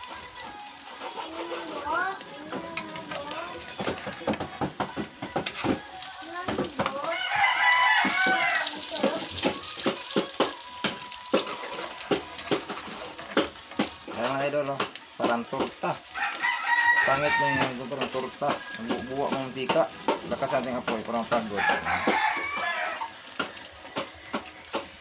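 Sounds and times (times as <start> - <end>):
metal spatula scraping a wok: 0.8 - 1.8
rooster crowing: 6.9 - 8.8, 16.1 - 17.8, 18.4 - 19.4, 21.5 - 24.7.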